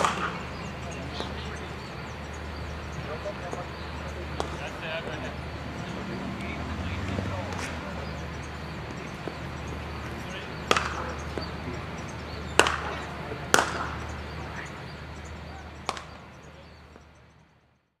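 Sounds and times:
cricket bat striking ball: 0.0 - 1.8, 4.3 - 5.2, 7.1 - 17.1
steady low hum: 0.0 - 17.4.

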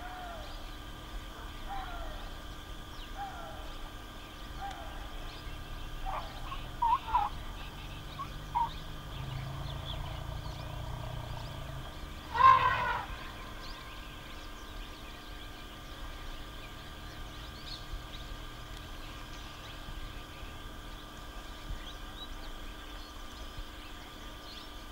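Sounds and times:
faint background hum: 0.0 - 24.9
loud animal call: 4.6 - 14.7.

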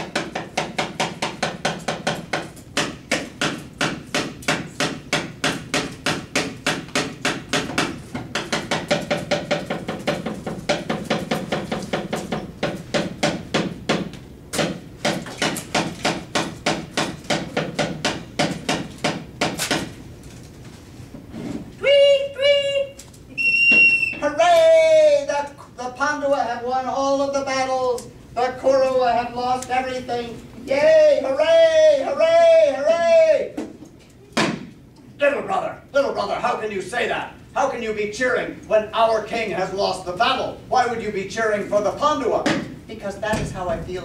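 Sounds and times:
rapid knocking on wooden chest: 0.0 - 19.9.

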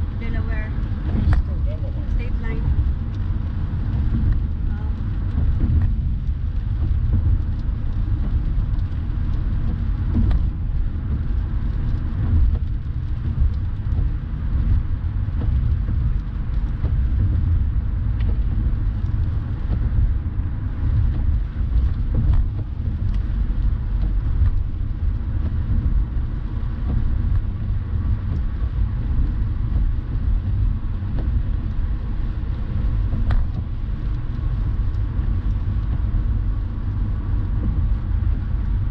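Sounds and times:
car driving on highway: 0.0 - 38.9.

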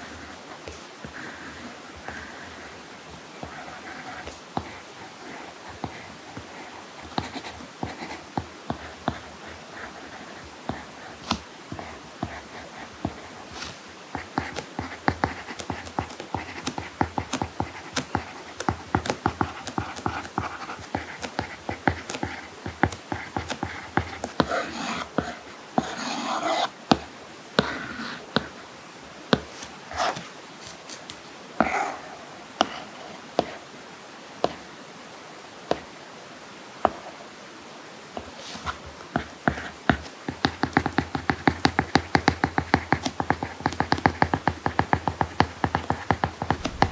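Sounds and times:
stylus tapping and scratching screen: 3.4 - 28.6, 32.6 - 33.6, 38.2 - 46.9.

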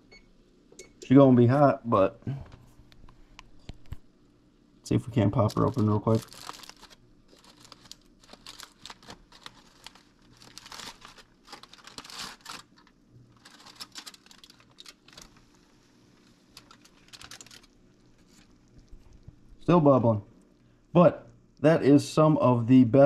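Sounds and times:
aluminium foil crinkling: 5.2 - 19.2.

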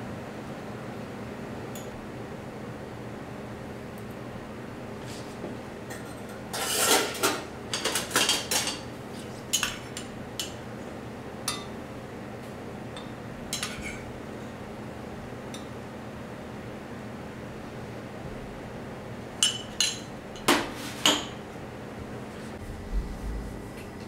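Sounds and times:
dishes and cutlery clattering: 5.9 - 8.9.

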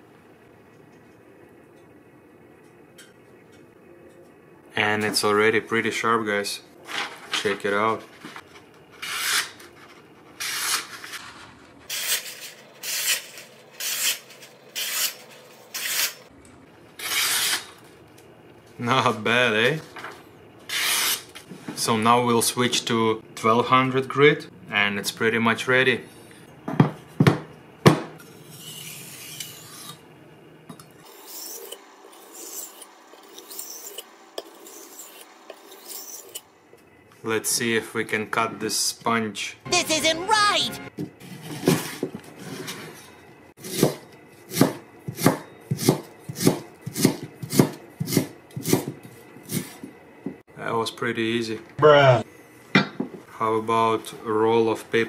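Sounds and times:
knife scraping on whetstone: 11.9 - 16.2, 31.0 - 36.5.

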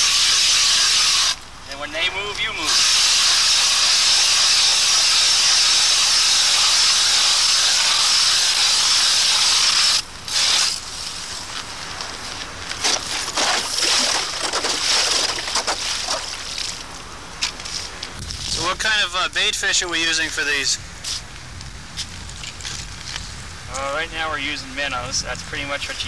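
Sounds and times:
ice auger grinding through ice: 2.7 - 10.8, 12.8 - 16.8
auger scraping and knocking: 12.7 - 16.9.

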